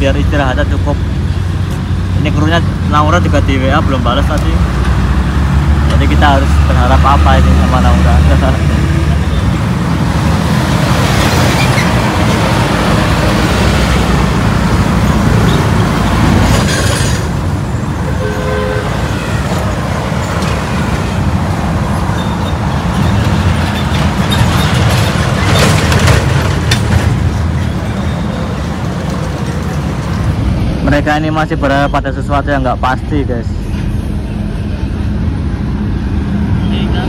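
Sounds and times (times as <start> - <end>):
traffic passing: 0.0 - 37.0
car horn toot: 18.1 - 19.4.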